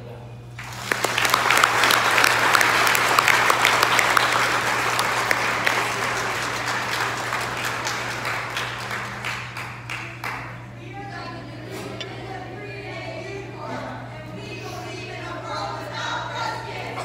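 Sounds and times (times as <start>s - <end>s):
large audience applauding: 0.6s - 10.7s.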